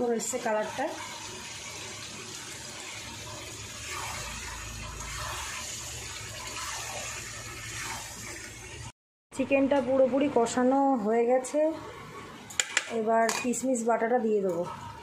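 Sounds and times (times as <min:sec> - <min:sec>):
chicken sizzling in oil: 0:00.0 - 0:08.9
metal spatula scraping pan: 0:00.2 - 0:08.4.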